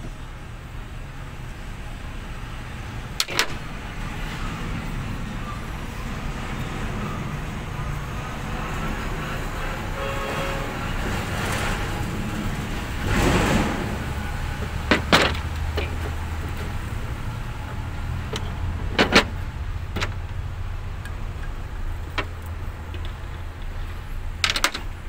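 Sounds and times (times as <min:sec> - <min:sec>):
clicks of plastic and metal parts: 0:03.2 - 0:03.7, 0:14.6 - 0:16.8, 0:17.7 - 0:20.4, 0:21.0 - 0:25.0.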